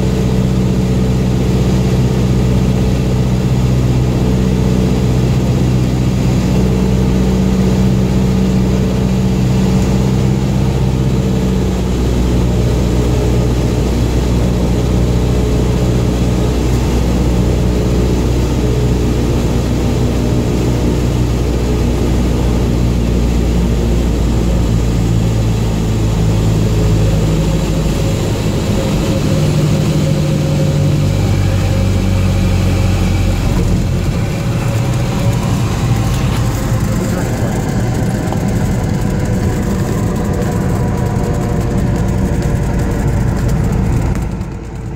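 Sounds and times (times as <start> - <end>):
light airplane engine droning: 0.0 - 44.9.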